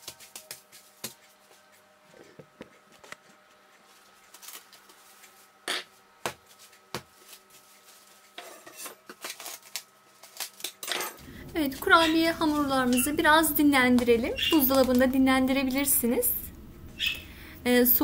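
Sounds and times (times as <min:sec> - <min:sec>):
cling film rustling and crinkling: 0:03.0 - 0:05.6, 0:06.4 - 0:08.4, 0:09.1 - 0:15.2.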